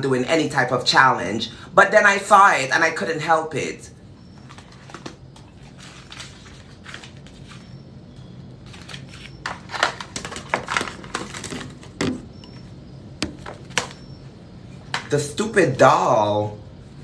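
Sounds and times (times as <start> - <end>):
paper rustling and crinkling: 4.4 - 7.8, 8.6 - 12.2
objects knocking and clattering: 9.5 - 12.6, 13.2 - 14.0.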